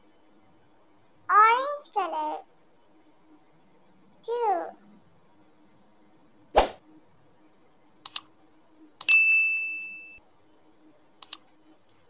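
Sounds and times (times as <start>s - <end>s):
short whoosh: 6.6s - 6.8s
mouse clicks: 8.0s - 8.3s, 11.2s - 11.4s
bell ding: 9.1s - 10.2s.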